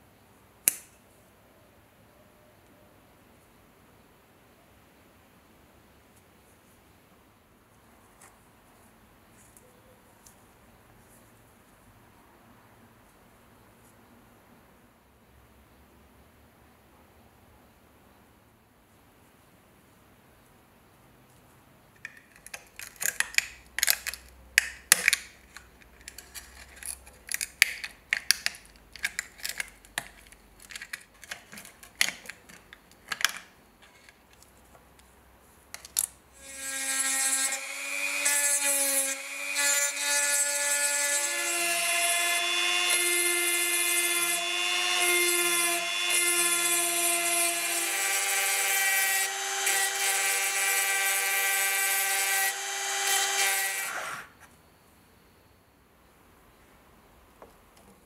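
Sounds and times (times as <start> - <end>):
electric rotary tool whining: 41.2 - 54.3.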